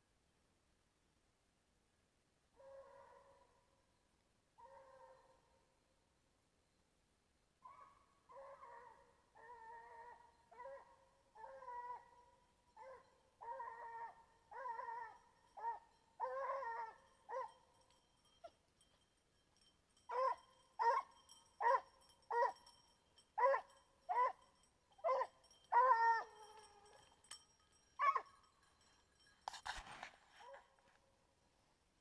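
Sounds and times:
dog barking: 2.6s - 3.6s, 4.6s - 5.5s, 7.7s - 17.6s, 23.4s - 24.4s
hound baying: 7.7s - 31.0s.

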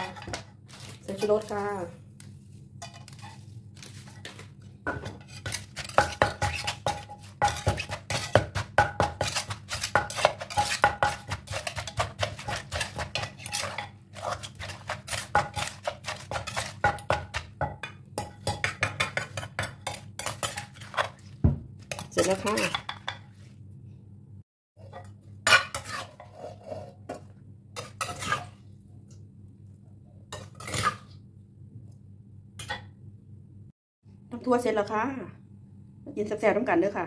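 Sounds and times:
pestle pounding in a mortar: 4.9s - 23.1s.

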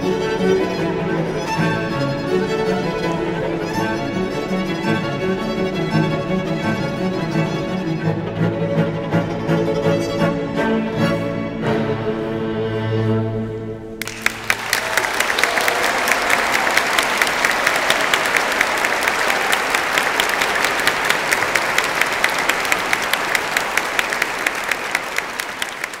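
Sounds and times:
audience applause: 14.0s - 26.0s.

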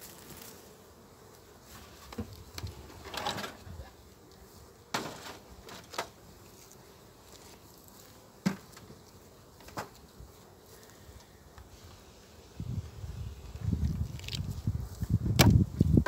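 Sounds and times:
honeybees buzzing: 0.0s - 16.0s
rustles: 0.0s - 16.0s
sharp knocks on wooden hive: 4.9s - 6.2s, 8.4s - 9.0s, 15.3s - 15.7s.

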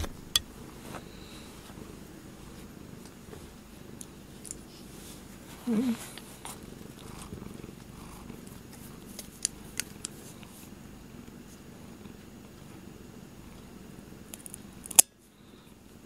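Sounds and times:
cat purring: 0.0s - 14.8s.

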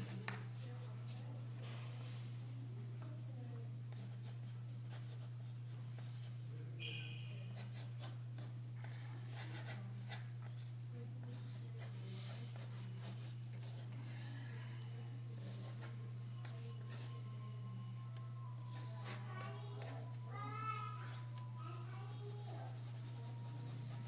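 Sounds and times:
steady low hum: 0.0s - 24.0s
pencil scratching on paper: 3.9s - 5.3s, 7.5s - 13.9s, 15.4s - 17.2s, 22.0s - 24.0s.

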